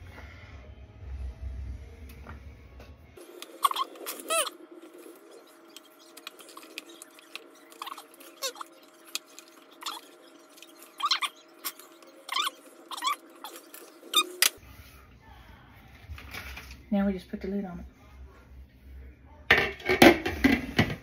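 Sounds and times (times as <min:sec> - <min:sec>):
squeaky chirps bending in pitch: 0:03.5 - 0:14.6.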